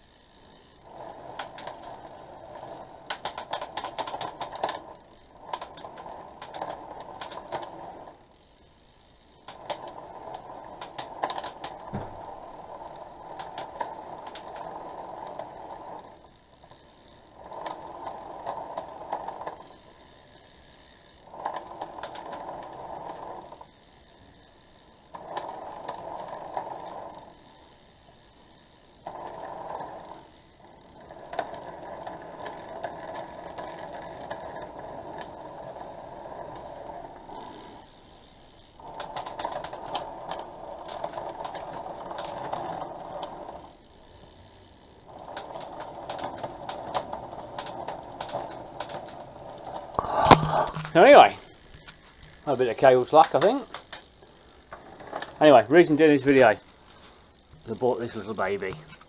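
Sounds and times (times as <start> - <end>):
bike chain whirring: 0.0 - 59.0
sharp gear clicks: 45.2 - 59.0.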